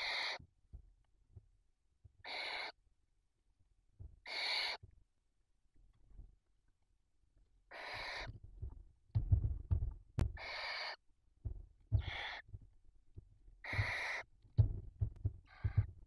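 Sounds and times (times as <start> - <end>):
owls rasping hisses: 0.0 - 0.4, 2.3 - 2.7, 4.3 - 4.8, 10.4 - 11.0
birds thumping and scuffling: 7.8 - 10.7, 11.4 - 16.0.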